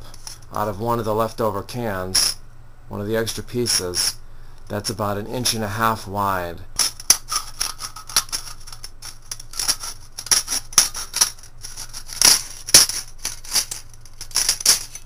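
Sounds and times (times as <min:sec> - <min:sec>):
scissors cutting aluminium can: 0:06.8 - 0:15.0.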